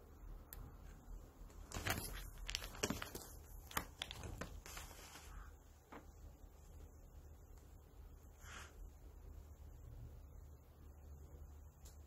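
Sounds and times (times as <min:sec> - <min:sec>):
cats scuffling: 0:01.5 - 0:05.4.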